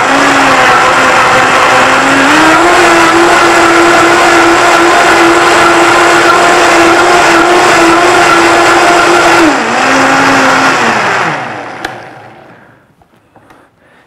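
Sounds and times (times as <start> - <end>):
blender motor whining: 0.0 - 12.6
blender click: 8.2 - 12.5.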